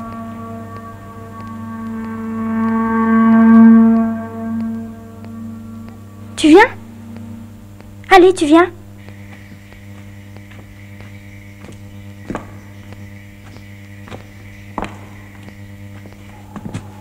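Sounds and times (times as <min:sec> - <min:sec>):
faint high whistle: 0:00.0 - 0:07.6
low electrical hum: 0:00.0 - 0:17.0.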